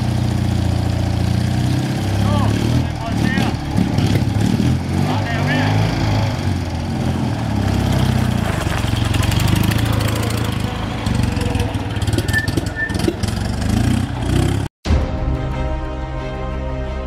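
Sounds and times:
motorcycle engine revving: 0.0 - 14.7
music: 14.8 - 17.0.

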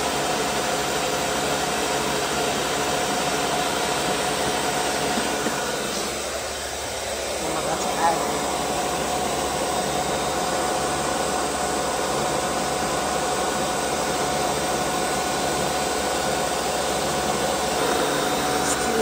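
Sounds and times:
blender running at high speed: 0.0 - 19.0.

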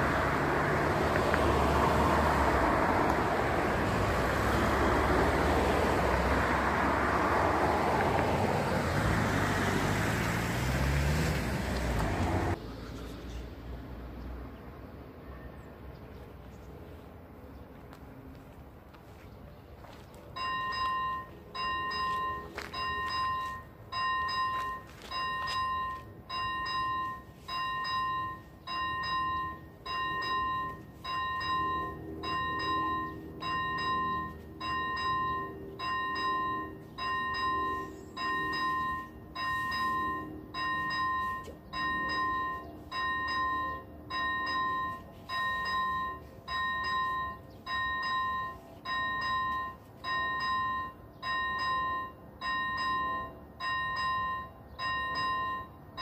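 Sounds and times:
level crossing bell dinging: 20.4 - 56.0.

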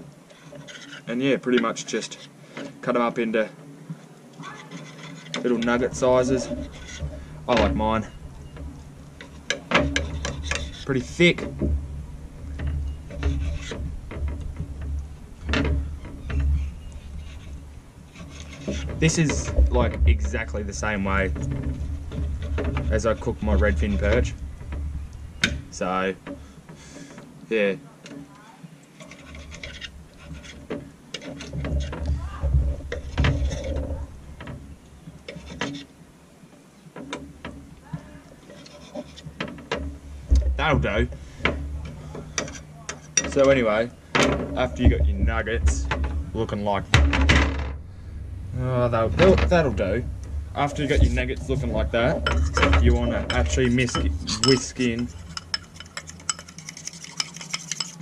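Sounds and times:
knife scraping on plate: 4.5 - 7.2, 9.2 - 11.2, 13.1 - 13.8, 16.6 - 19.4, 29.0 - 30.6, 38.4 - 39.3, 52.2 - 58.0
dull low knocks: 5.6 - 26.9, 39.3 - 42.4, 43.4 - 55.4
low rumble: 5.8 - 18.2, 18.9 - 26.2, 43.9 - 55.2.

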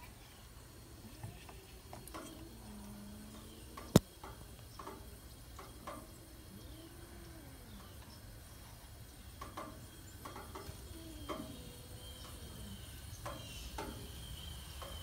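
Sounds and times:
cats yowling: 10.6 - 13.1.

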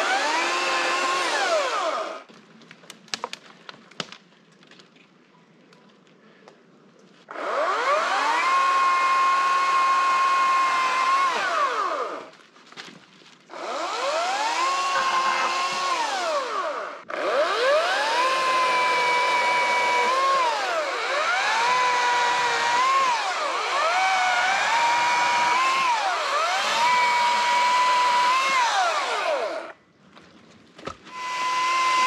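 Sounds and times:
chainsaw engine revving: 0.0 - 2.3, 7.3 - 12.3, 13.5 - 29.8, 31.1 - 32.0.

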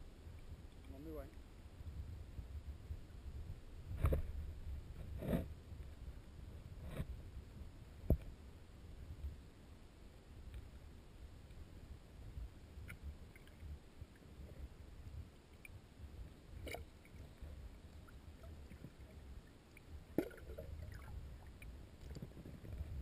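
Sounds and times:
muffled underwater river rumble: 0.0 - 23.0
faint clicks and ticks: 10.4 - 10.8, 12.8 - 14.6, 15.3 - 15.8.

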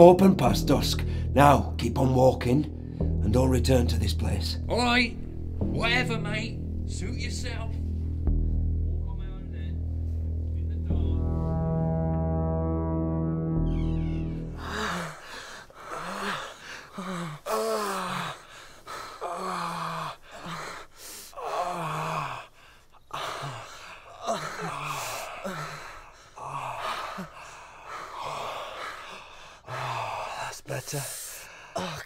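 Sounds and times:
men gasping and moaning: 13.9 - 32.0.

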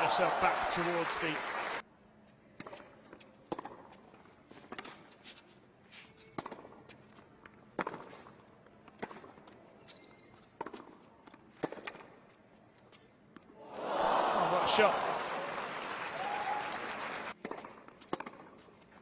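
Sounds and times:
court noises: 0.0 - 1.8, 13.4 - 18.7
racket striking tennis ball: 2.6 - 4.0, 7.8 - 8.2, 17.4 - 18.7
tennis ball bouncing: 2.6 - 5.0, 6.4 - 8.2, 8.9 - 12.2, 17.4 - 18.9.

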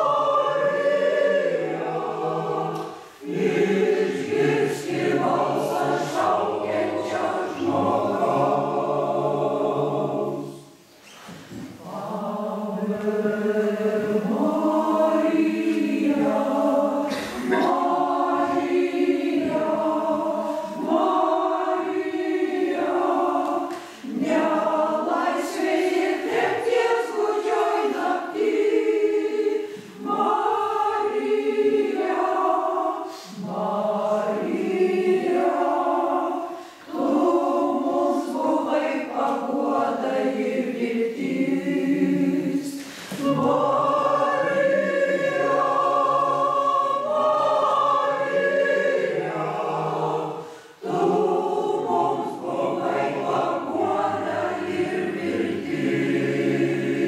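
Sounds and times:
choir singing a hymn: 0.0 - 57.0.

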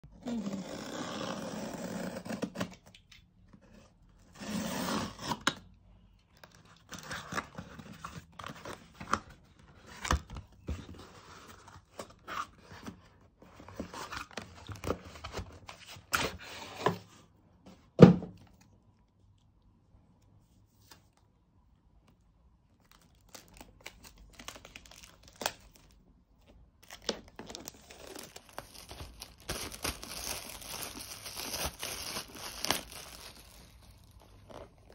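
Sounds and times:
cardboard scraping and tearing: 27.2 - 34.9.

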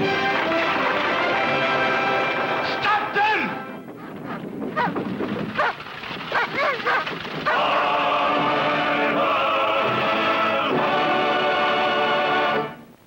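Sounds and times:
orchestral music with brass: 0.0 - 3.9, 7.6 - 12.9
small dog barking and yelping: 4.8 - 5.0, 5.6 - 7.6.

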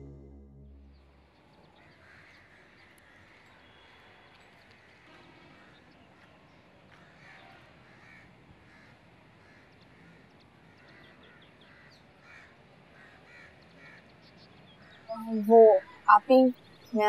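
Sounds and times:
faint crows cawing: 1.7 - 15.1
high bird chirps: 15.0 - 17.0.

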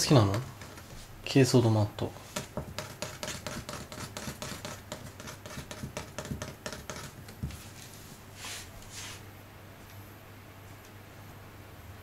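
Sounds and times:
fingers tapping on hard mat: 2.3 - 7.6.

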